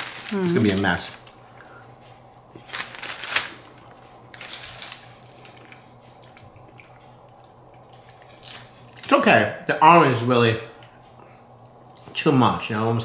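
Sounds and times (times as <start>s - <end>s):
cookie crunching: 0.0s - 1.4s.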